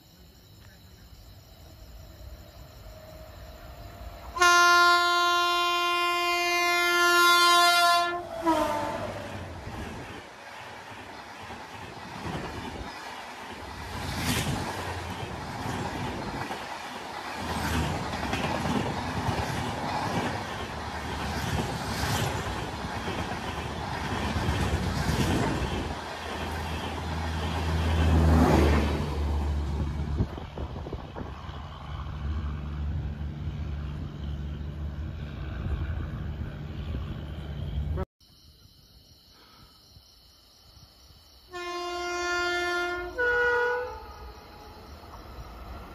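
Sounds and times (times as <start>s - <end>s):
train wheels rushing on rails: 2.3s - 38.0s.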